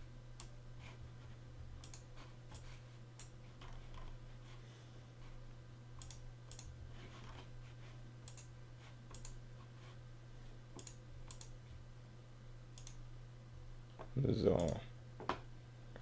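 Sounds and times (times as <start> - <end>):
low steady hum: 0.0 - 16.0
computer mouse clicking: 1.8 - 4.1, 6.0 - 7.4, 8.2 - 8.5, 9.1 - 9.4, 10.8 - 11.6, 12.8 - 13.0, 14.6 - 14.8.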